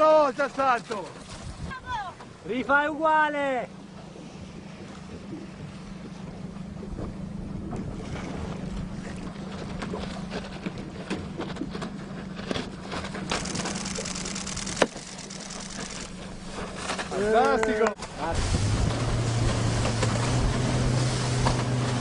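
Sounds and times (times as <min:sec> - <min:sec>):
boat engine drone: 0:00.0 - 0:22.0
water rushing and spray hissing: 0:13.0 - 0:22.0.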